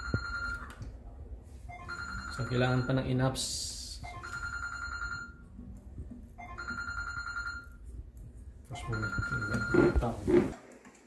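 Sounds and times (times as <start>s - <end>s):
telephone ringtone: 0.0s - 0.7s, 1.7s - 3.1s, 4.0s - 5.5s, 6.4s - 7.8s, 8.8s - 10.1s.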